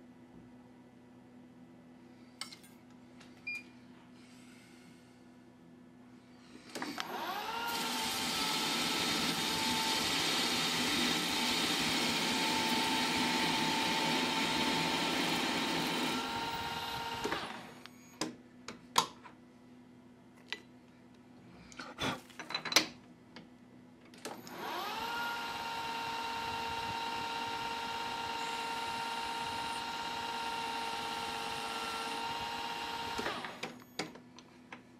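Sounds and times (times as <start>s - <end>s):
milling machine spindle whining: 6.8s - 17.9s, 24.3s - 34.0s
tool cutting metal: 6.9s - 17.8s.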